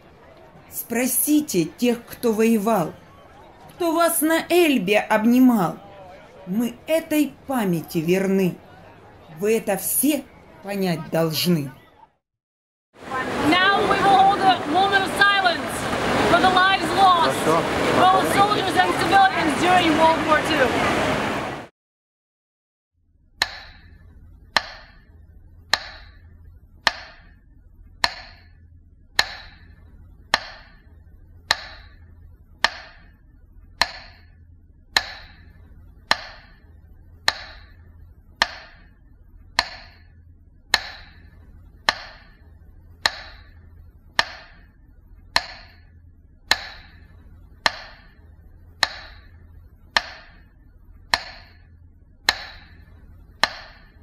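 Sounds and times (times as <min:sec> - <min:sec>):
metronome ticking: 0:23.4 - 0:27.4, 0:28.0 - 0:28.6, 0:29.2 - 0:34.3, 0:34.9 - 0:45.9, 0:46.5 - 0:54.0
faint low hum: 0:23.8 - 0:54.0.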